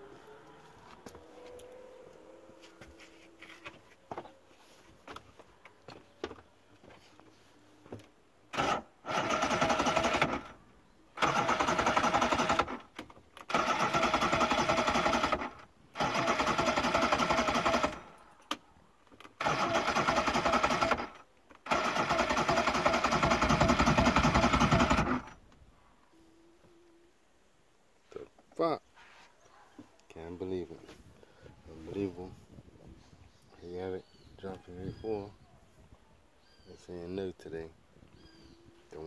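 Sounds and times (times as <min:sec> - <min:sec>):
outboard engine cranking: 0:08.5 - 0:10.6, 0:11.2 - 0:18.1, 0:19.3 - 0:25.4.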